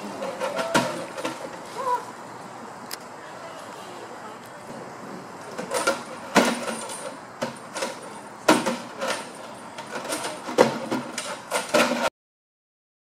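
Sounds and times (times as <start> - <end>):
faint voices: 0.0 - 5.8
knocks and clatter: 5.2 - 12.1.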